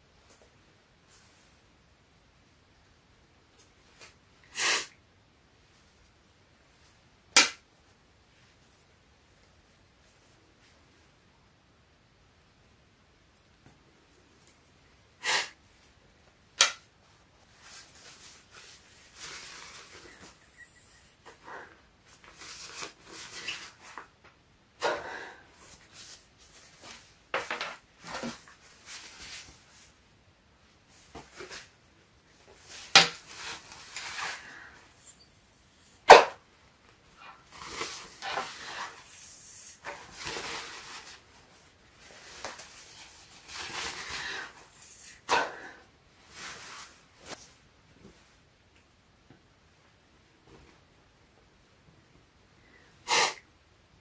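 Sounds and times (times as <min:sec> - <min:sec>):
fabric rustling: 0:17.4 - 0:20.4, 0:46.2 - 0:48.4
person breathing hard through fabric: 0:43.9 - 0:45.9.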